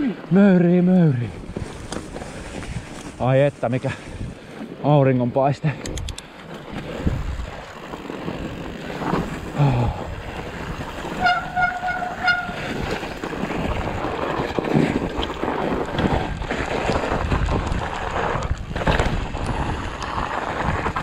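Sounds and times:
bike tyres rolling on snow: 0.0s - 21.0s
wind on microphone: 6.9s - 7.7s, 8.5s - 21.0s.

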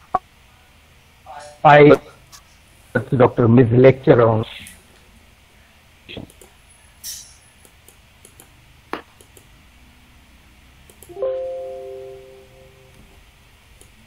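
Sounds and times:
system chime: 11.1s - 13.0s.

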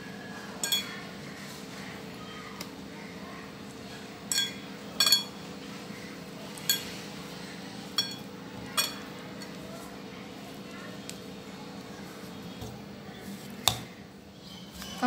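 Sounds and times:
glass bowl clinking: 0.6s - 1.0s, 4.3s - 5.4s, 6.6s - 6.9s, 8.0s - 9.1s
hand kneading dough: 9.3s - 15.0s.

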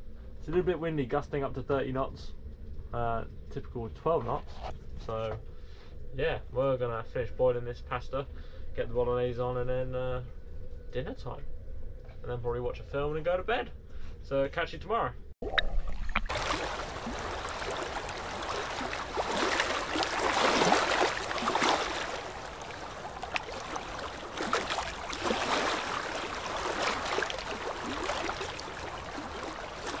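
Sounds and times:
small waves sloshing and splashing: 15.4s - 30.0s.

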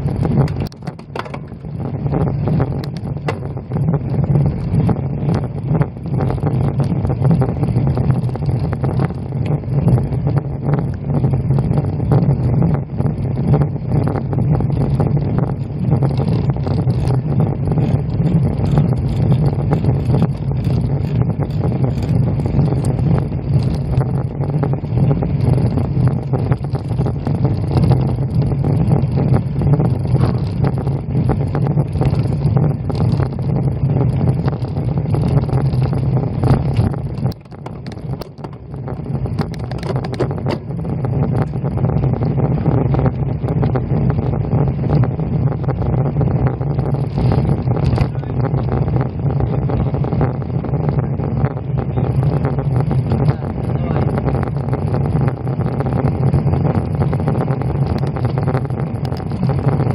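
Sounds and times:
faint bicycle rattles: 0.0s - 44.0s, 46.8s - 48.8s
wind rumbling on microphone: 0.0s - 59.9s.

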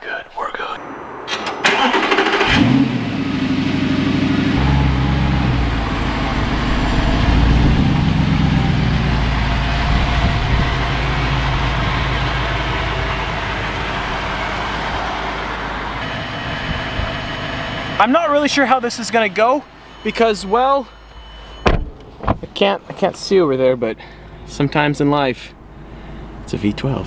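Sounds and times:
car engine idling: 0.6s - 22.3s, 23.3s - 27.0s.

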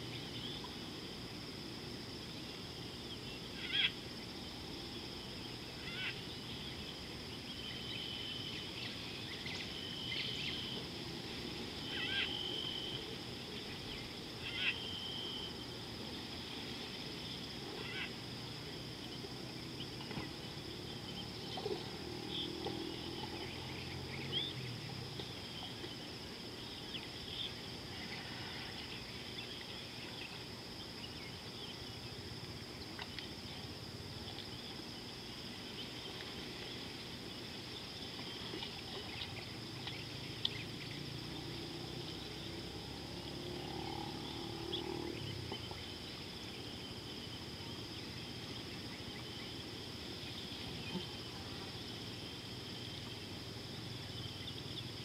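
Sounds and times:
insect chirps and clicks: 0.0s - 55.0s
insect drone: 0.0s - 55.0s
faint animal call: 3.4s - 4.0s, 5.7s - 6.4s, 11.8s - 15.6s, 17.6s - 18.8s, 27.4s - 30.4s.

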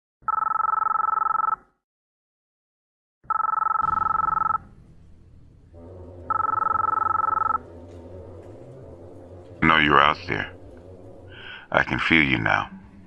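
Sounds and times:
two-tone telephone ring: 0.3s - 1.6s, 3.3s - 4.6s, 6.3s - 7.6s
low steady drone: 3.8s - 13.0s.

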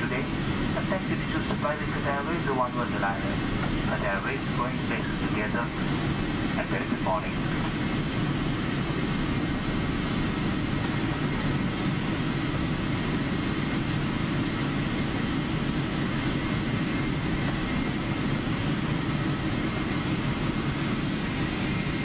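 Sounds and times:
faint high whine: 0.0s - 22.0s
jet engines idling rumble: 0.0s - 22.0s.

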